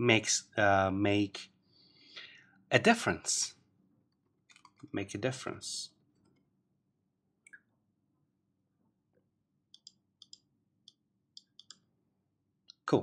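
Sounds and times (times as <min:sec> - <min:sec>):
computer mouse clicks: 0:09.7 - 0:11.8.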